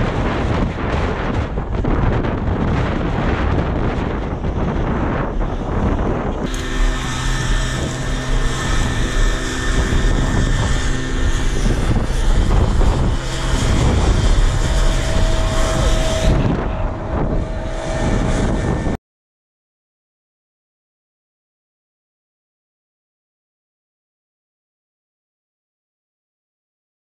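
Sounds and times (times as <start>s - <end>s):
vehicle engine running: 0.0s - 19.0s
wind buffeting microphone: 0.0s - 19.0s.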